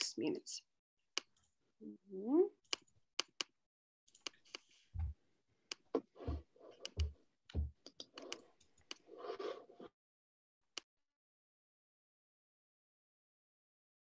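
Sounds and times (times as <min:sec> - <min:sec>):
keyboard and mouse clicking: 0:02.7 - 0:03.5, 0:04.1 - 0:04.6, 0:06.6 - 0:09.1.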